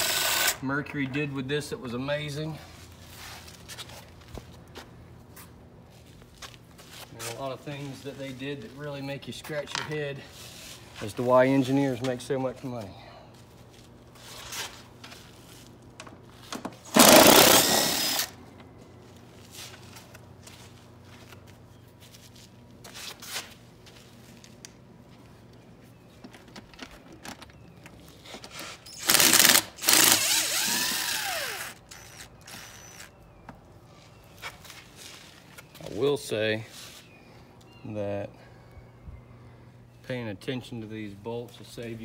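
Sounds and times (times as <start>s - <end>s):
cordless drill spinning bolts: 0.0s - 0.6s, 16.9s - 18.3s, 28.8s - 33.2s.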